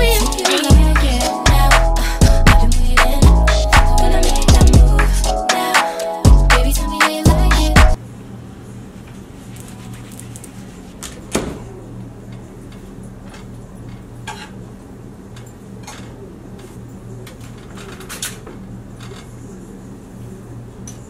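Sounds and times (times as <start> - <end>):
steady low hum: 0.0 - 5.5.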